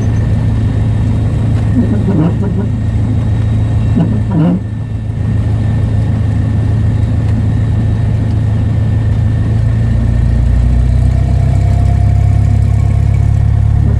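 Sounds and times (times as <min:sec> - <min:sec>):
propeller plane engine droning: 0:00.0 - 0:13.9.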